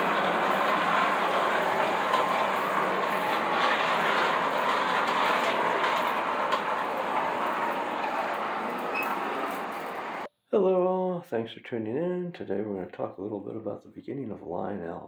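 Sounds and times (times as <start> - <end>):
toy trolleys running on rails: 0.0 - 10.3.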